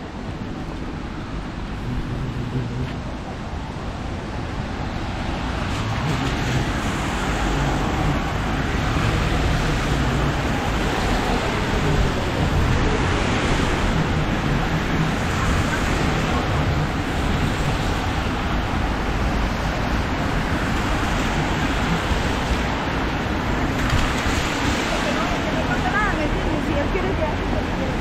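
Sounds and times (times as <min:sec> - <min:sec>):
low rumble of vehicles: 0:00.0 - 0:28.0
rain: 0:00.0 - 0:28.0.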